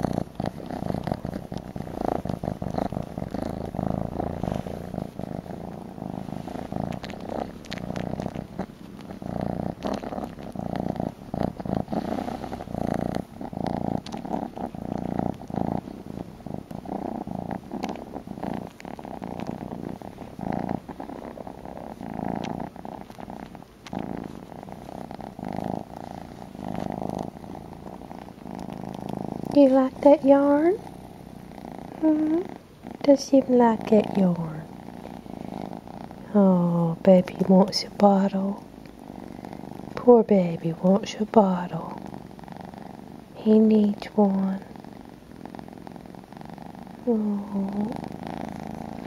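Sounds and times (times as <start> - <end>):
small clicks and rustles: 0.0 - 16.9, 17.5 - 29.6
kitten purring loudly: 0.0 - 49.0.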